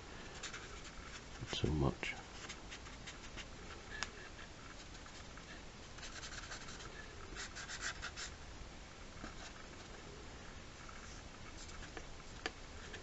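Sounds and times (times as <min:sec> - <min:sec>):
marker scratching on paper: 0:00.2 - 0:01.4, 0:06.0 - 0:08.4.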